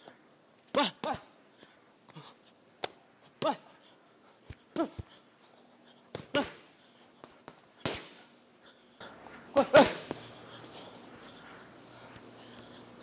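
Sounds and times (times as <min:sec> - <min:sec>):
boxing gloves slapping pads: 0:02.1 - 0:03.6, 0:06.1 - 0:08.3, 0:09.6 - 0:10.2.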